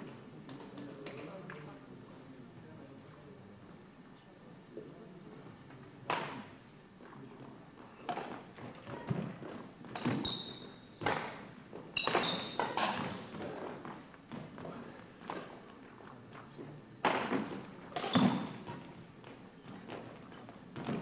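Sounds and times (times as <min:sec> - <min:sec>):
high shoe squeaks: 0:09.9 - 0:11.2, 0:11.9 - 0:13.4, 0:17.2 - 0:21.0
footfalls on wooden court: 0:17.0 - 0:21.0.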